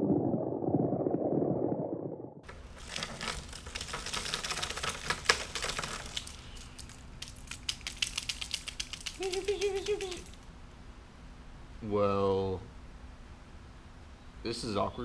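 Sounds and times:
fishing lure clicks and rattles: 0:06.1 - 0:10.4.

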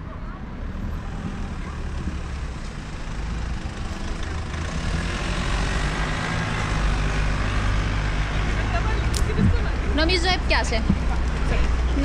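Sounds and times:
low road rumble: 0:00.0 - 0:12.0.

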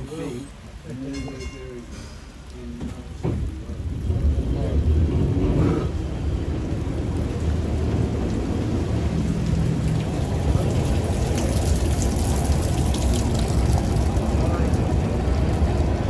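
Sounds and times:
tram wheels rumbling on rails: 0:01.2 - 0:12.6, 0:13.6 - 0:16.0.

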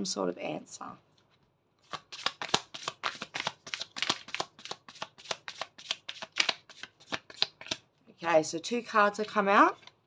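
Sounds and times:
cards being shuffled: 0:01.8 - 0:07.8.

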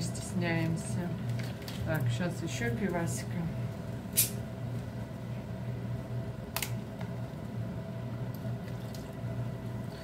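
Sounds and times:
steady low hum: 0:00.0 - 0:10.0
bottle cap pop and hiss: 0:04.1 - 0:04.4.

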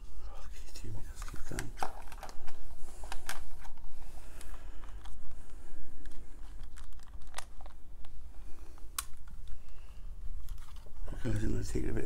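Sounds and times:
camera handling clicks and crackles: 0:01.2 - 0:03.8, 0:10.4 - 0:10.9.

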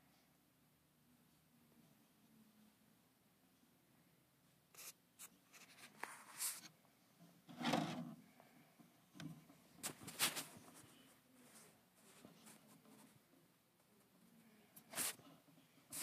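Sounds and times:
light scratching and rubbing: 0:04.8 - 0:06.8, 0:07.5 - 0:08.2, 0:09.7 - 0:13.3, 0:14.8 - 0:16.0.

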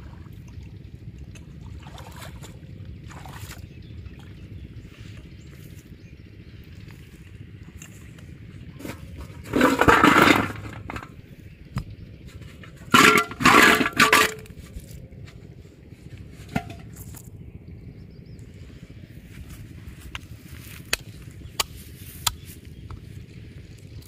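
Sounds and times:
water sloshing and splashing: 0:00.0 - 0:04.5, 0:07.7 - 0:11.2, 0:12.5 - 0:14.8.

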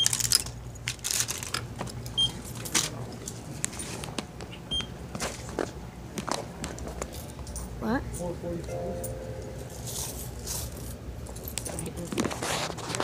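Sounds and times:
packages rustling and clicking: 0:00.0 - 0:04.3
steady low hum: 0:04.7 - 0:11.9.

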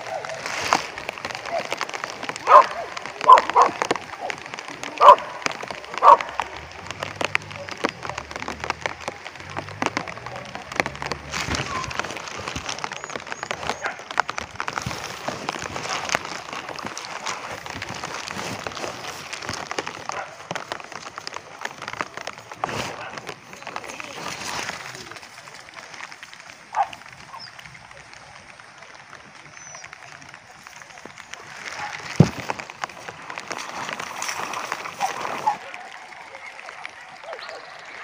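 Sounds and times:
rain pattering: 0:00.0 - 0:38.0
scattered ticks: 0:00.0 - 0:38.0
dog barking: 0:02.4 - 0:04.4, 0:05.0 - 0:05.3, 0:06.0 - 0:06.3.

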